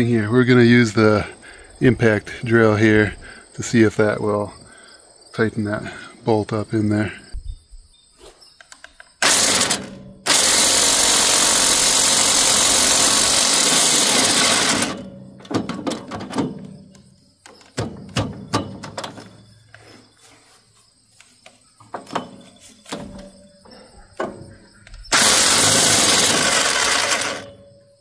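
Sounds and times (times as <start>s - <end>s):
impact drill hammering: 9.2s - 15.1s, 25.1s - 27.5s
sharp metal knocks and clicks: 14.4s - 19.4s, 21.8s - 23.4s, 24.1s - 27.6s.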